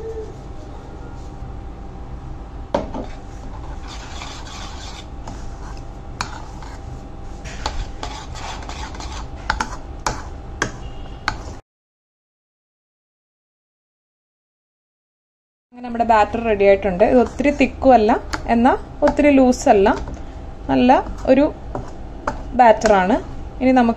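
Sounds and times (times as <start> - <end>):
low steady hum: 0.0 - 11.6, 15.8 - 23.9
spoon stirring batter in bowl: 2.8 - 11.6, 16.3 - 20.2, 20.8 - 23.3.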